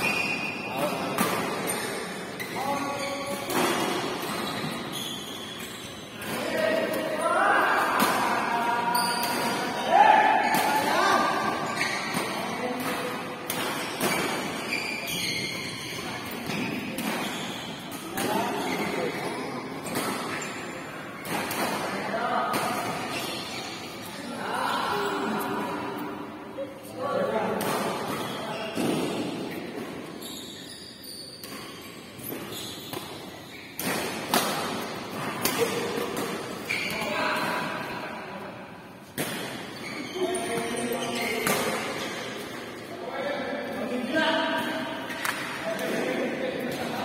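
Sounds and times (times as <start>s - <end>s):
shoes squeaking on court: 0.0s - 6.4s, 10.4s - 21.7s, 22.6s - 25.6s, 27.8s - 37.8s, 39.4s - 42.8s
rackets hitting shuttlecocks: 31.4s - 36.7s.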